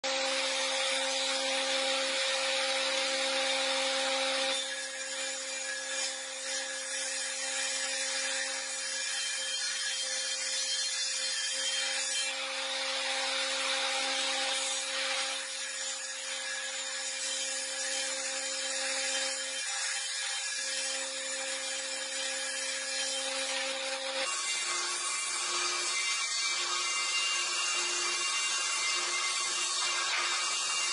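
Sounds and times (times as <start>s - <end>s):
cutter hissing through wood: 11.2s - 30.9s.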